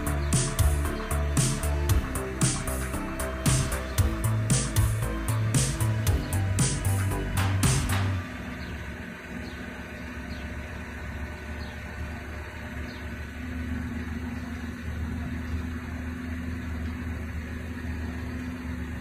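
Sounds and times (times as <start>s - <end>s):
crane engine humming: 0.0s - 19.0s.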